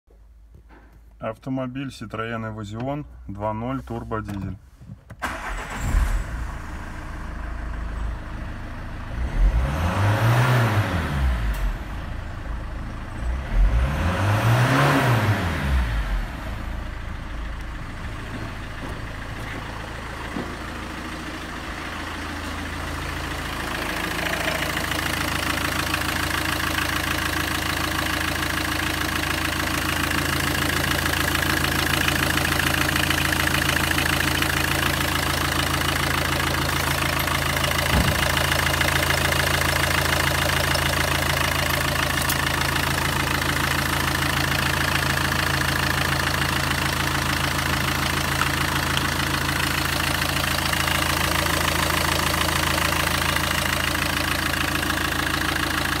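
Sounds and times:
diesel engine idling: 5.2 - 9.7, 10.4 - 13.8, 15.5 - 56.0
low bump: 17.7 - 21.0.

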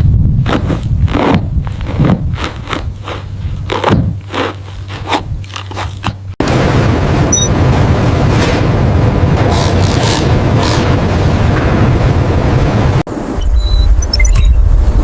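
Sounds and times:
steady low rumble: 0.0 - 15.0
camel crunching ball: 0.4 - 6.4.

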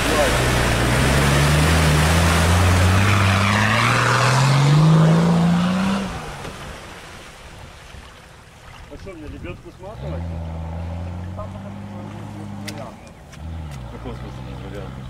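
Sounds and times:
car engine revving: 0.0 - 6.7, 9.8 - 15.0
water rushing: 0.0 - 15.0.

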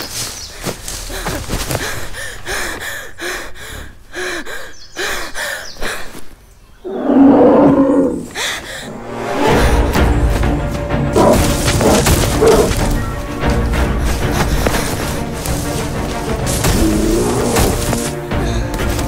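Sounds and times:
man panting: 0.6 - 6.3, 13.8 - 15.4.

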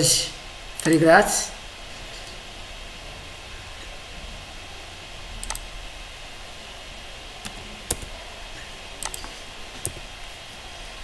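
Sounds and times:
computer mouse clicking: 5.4 - 5.7, 7.4 - 8.1, 9.0 - 10.1.

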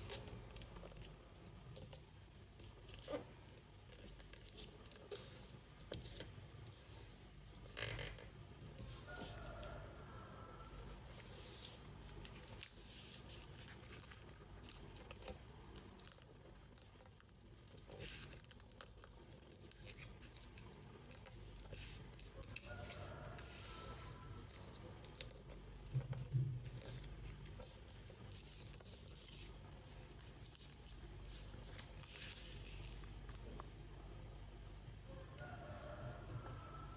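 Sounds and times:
paper rustling and creasing: 11.1 - 17.2, 17.8 - 33.7.

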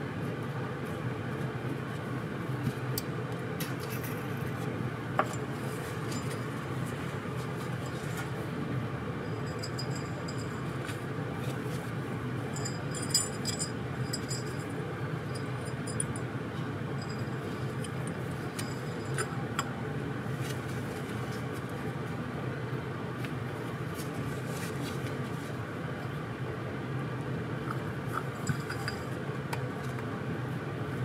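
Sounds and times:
steady low hum: 0.0 - 31.0
small metal parts clinking: 12.5 - 16.3, 17.0 - 19.4, 28.4 - 29.2.

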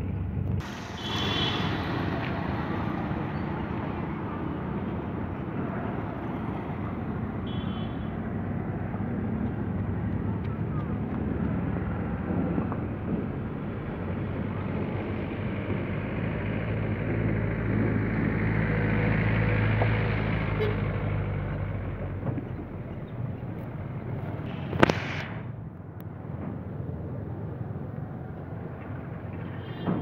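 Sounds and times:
low engine hum: 0.0 - 30.0
road and wind noise: 0.0 - 30.0.

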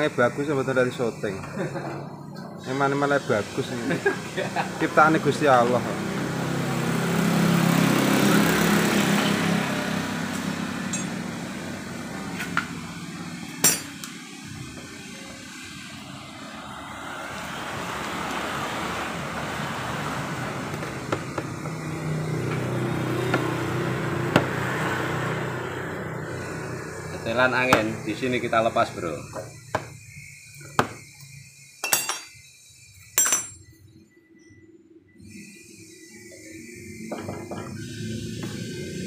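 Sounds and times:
metal tools clinking: 10.9 - 11.2, 13.6 - 14.1, 31.8 - 32.4, 33.1 - 33.7.

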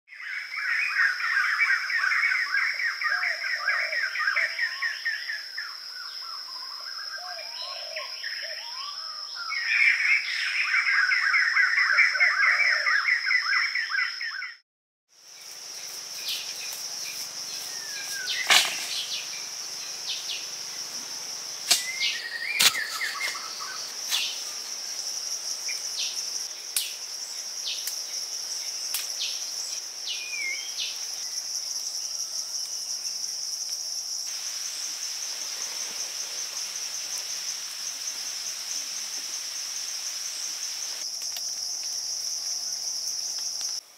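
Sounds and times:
insects droning: 0.1 - 14.4, 15.1 - 43.9
rapid bird chirping: 21.7 - 24.6.

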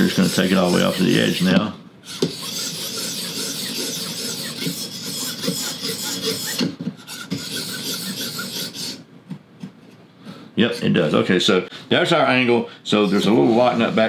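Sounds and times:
sharpening stone rasping on knife: 2.1 - 9.0.

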